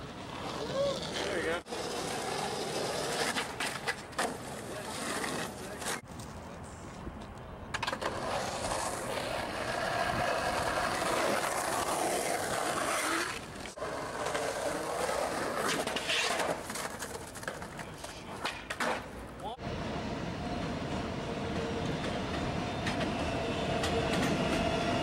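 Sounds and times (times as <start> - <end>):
sharp skateboard scrape: 0.0 - 6.0, 7.8 - 19.2
skateboard wheels rolling on concrete: 0.0 - 25.0.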